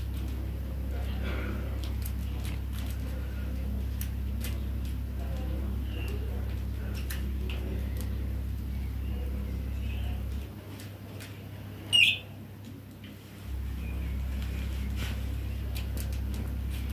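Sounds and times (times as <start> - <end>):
low steady hum: 0.0 - 16.9
high bird chirp: 11.9 - 12.3
parakeets chirping: 11.9 - 12.3.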